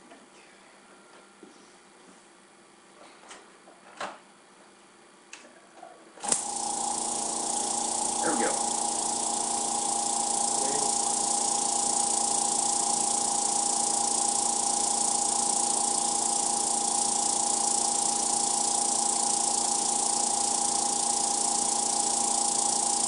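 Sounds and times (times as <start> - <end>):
air compressor motor hum: 6.2 - 23.0
compressor hiss: 6.2 - 23.0.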